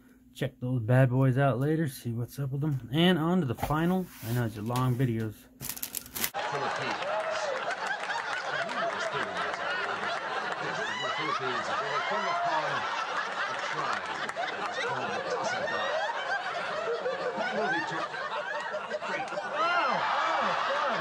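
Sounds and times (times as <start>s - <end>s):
studio audience laughing: 6.4s - 21.0s.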